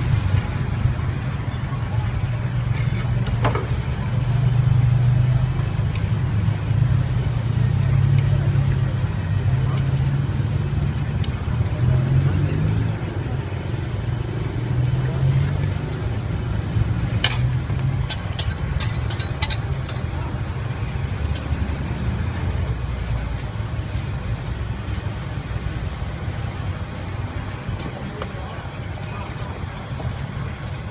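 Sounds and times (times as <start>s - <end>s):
steady low rumble: 0.0s - 30.9s
metal utensils clicking on steel: 17.2s - 20.0s.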